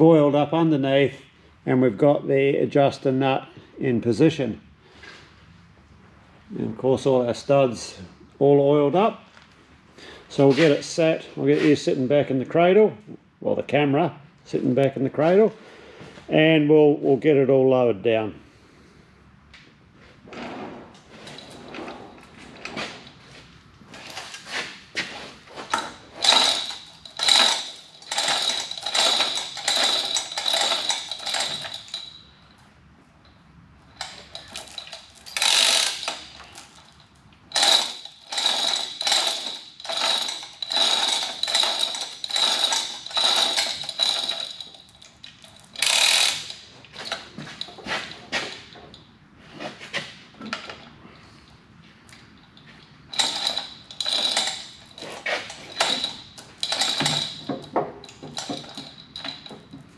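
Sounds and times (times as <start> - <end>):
chain hoist ratcheting clicks: 25.6 - 32.5, 33.2 - 48.7, 52.5 - 59.9.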